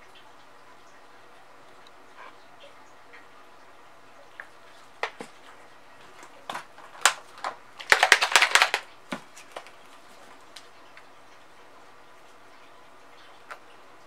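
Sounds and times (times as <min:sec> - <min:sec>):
plastic bottles clicking and knocking: 0:06.0 - 0:09.8.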